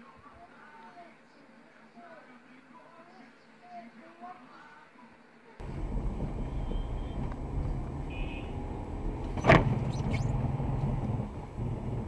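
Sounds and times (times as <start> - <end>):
car engine and road rumble: 5.6 - 12.0.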